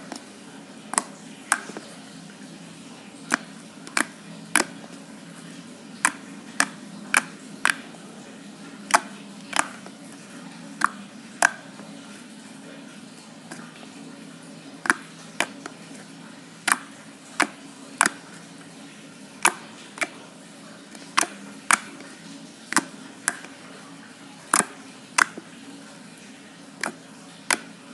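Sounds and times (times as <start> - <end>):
slime popping and clicking: 3.3 - 4.7, 21.2 - 21.9, 24.5 - 25.4.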